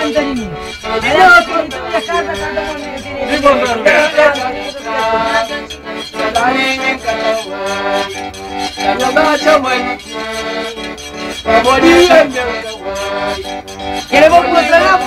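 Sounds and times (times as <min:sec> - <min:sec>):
person singing: 0:00.0 - 0:10.8, 0:11.4 - 0:15.0
button accordion playing: 0:00.0 - 0:15.0
scraped metal rasping rhythm: 0:00.0 - 0:15.0.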